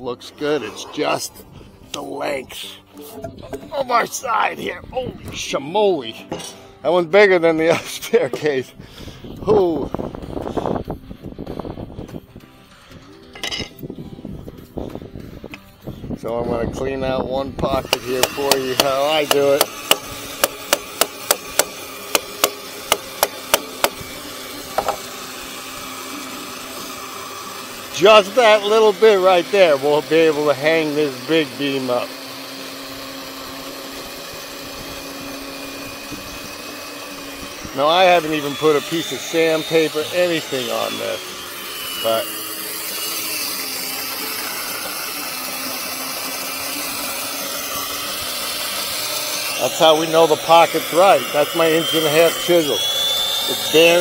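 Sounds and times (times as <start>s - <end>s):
machine humming: 17.7s - 54.0s
chisel being struck: 17.8s - 24.0s, 24.7s - 25.0s.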